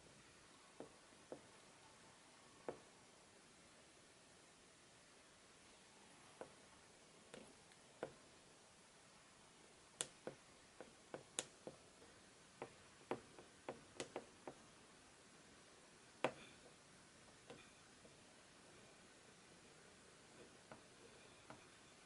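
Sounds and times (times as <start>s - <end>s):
oil pastel tapping on paper: 10.0s - 14.6s.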